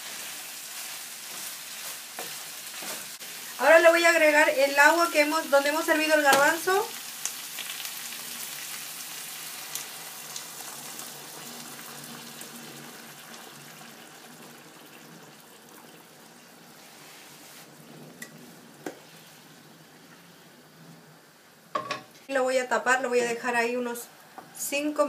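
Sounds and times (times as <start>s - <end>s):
hot pan sizzling with water: 0.0s - 20.1s.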